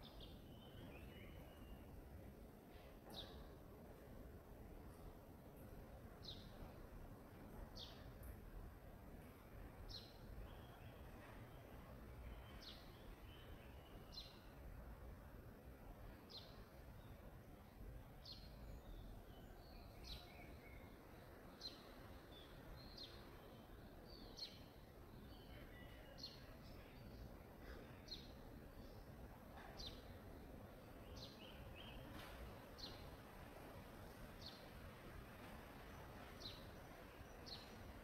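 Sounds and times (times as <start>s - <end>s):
bird chirping: 0.0s - 2.0s, 9.9s - 14.5s, 18.2s - 33.2s, 35.8s - 37.9s.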